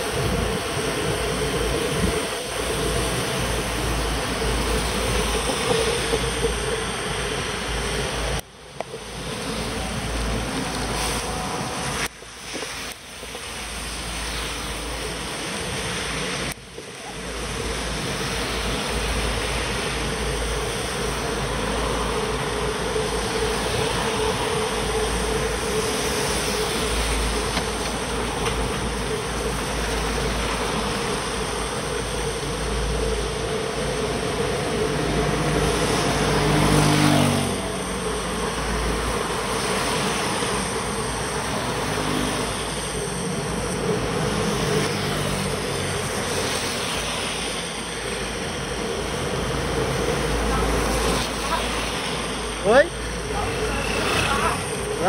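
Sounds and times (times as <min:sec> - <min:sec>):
tyres hissing on wet asphalt: 0:00.0 - 0:55.0
wind rumble on microphone: 0:00.0 - 0:55.0
vehicle engine passing: 0:34.7 - 0:38.1.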